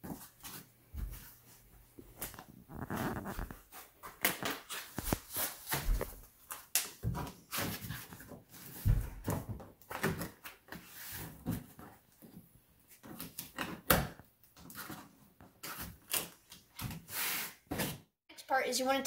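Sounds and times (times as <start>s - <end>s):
foam tubes rubbing and clicking: 2.2s - 6.1s.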